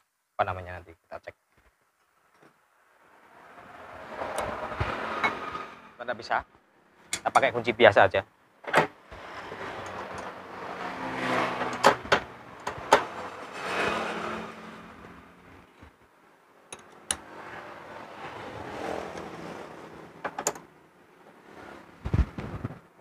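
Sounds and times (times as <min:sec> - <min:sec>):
metallic clacks and scraping of tools: 0:07.1 - 0:07.6, 0:08.7 - 0:10.4, 0:11.6 - 0:14.4, 0:16.7 - 0:17.2.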